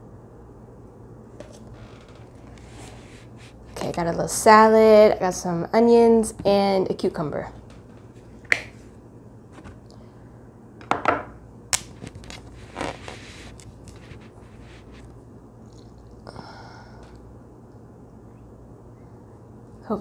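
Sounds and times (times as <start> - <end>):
lettuce rustling: 11.9 - 16.3.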